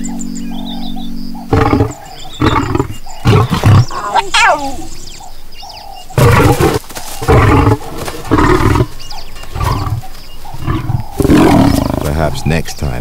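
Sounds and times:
lions snarling and roaring: 1.5s - 4.9s, 6.1s - 12.9s.

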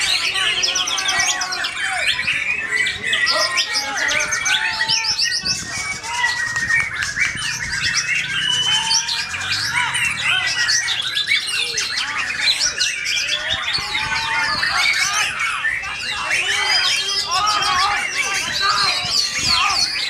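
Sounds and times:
songbirds singing: 0.0s - 20.0s.

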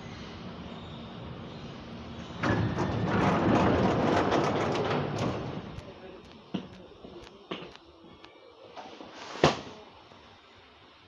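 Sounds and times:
rushing train noise: 0.0s - 6.7s.

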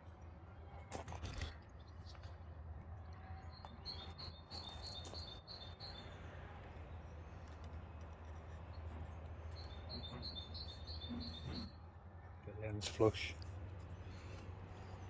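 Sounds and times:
small bird chirping: 3.4s - 6.3s, 8.2s - 11.8s.

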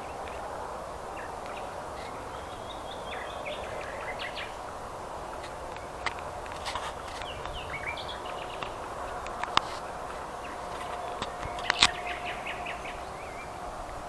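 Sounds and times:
songbirds chirping: 0.0s - 14.0s
steady background hiss: 0.0s - 14.0s
sharp clicks: 10.7s - 12.4s.

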